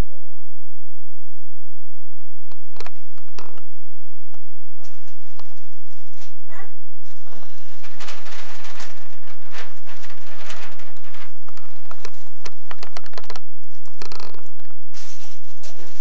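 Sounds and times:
blanket rustling: 0:04.8 - 0:13.0, 0:14.8 - 0:16.0.

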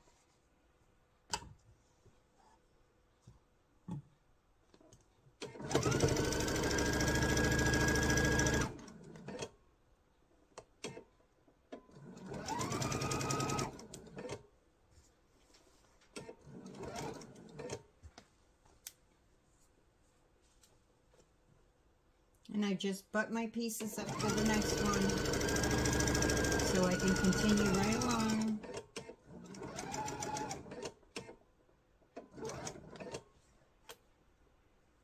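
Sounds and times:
sewing machine motor whine: 0:05.7 - 0:08.8, 0:24.0 - 0:28.6, 0:29.5 - 0:30.8.

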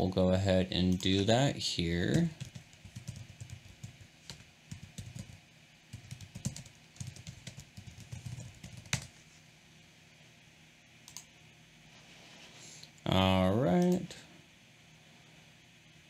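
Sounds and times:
typing on computer keyboard: 0:02.1 - 0:09.1.

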